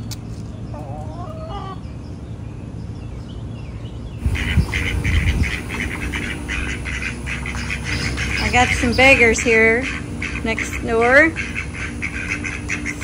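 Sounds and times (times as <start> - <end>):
ducks quacking rapidly: 4.2 - 13.0
hen calling: 4.2 - 13.0.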